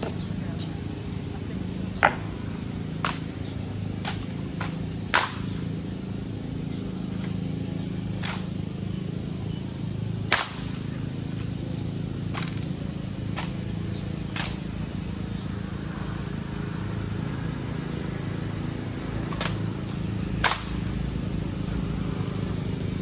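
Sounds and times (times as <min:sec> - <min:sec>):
low background murmur: 0:00.0 - 0:23.0
hands slapping wooden rifles: 0:03.0 - 0:03.3, 0:04.0 - 0:05.4, 0:08.2 - 0:08.5, 0:10.3 - 0:10.7, 0:13.4 - 0:13.6, 0:14.3 - 0:14.6, 0:19.3 - 0:19.6, 0:20.4 - 0:20.8.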